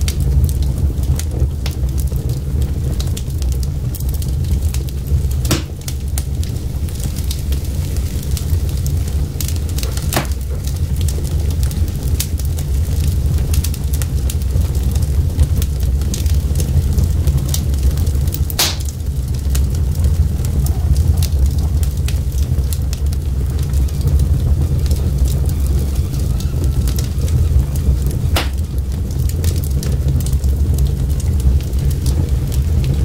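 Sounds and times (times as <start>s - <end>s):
fire crackling and popping: 0.0s - 33.0s
low rush of flames: 0.0s - 33.0s.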